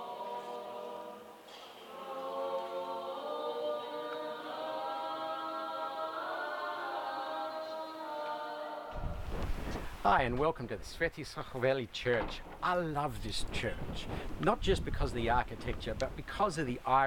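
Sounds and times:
choir chanting: 0.0 - 9.4.

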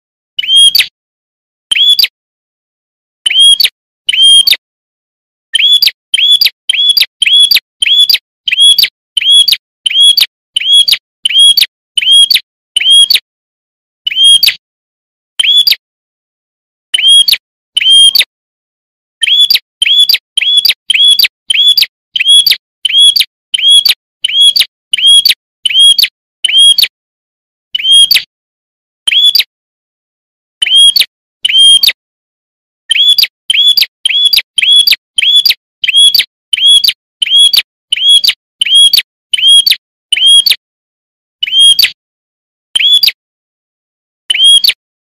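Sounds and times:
bird chirping: 0.4 - 0.9, 1.7 - 2.1, 3.2 - 4.6, 5.5 - 13.2, 14.0 - 14.6, 15.4 - 15.8, 16.9 - 18.3, 19.2 - 26.8, 27.7 - 28.3, 29.1 - 29.5, 30.6 - 32.0, 32.9 - 40.6, 41.4 - 42.0, 42.8 - 43.2, 44.3 - 44.8.

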